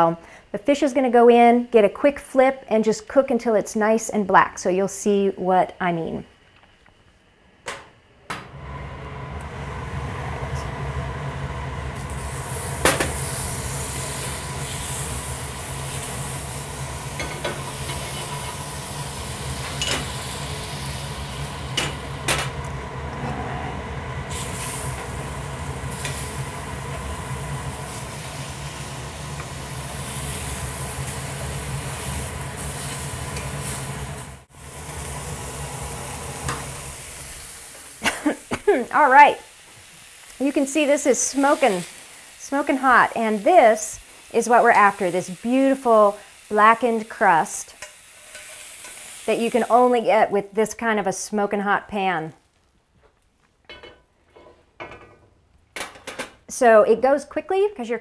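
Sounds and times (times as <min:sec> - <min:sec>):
vent fans droning: 0:00.0 - 0:47.6
fish sizzling in skillet: 0:12.0 - 0:22.3, 0:24.3 - 0:50.1.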